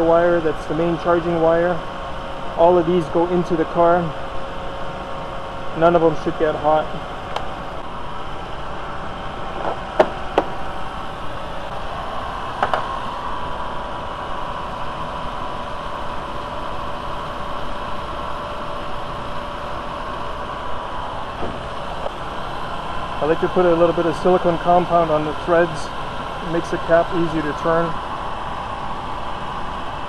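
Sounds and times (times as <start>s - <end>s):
car engine idling: 6.6s - 13.2s.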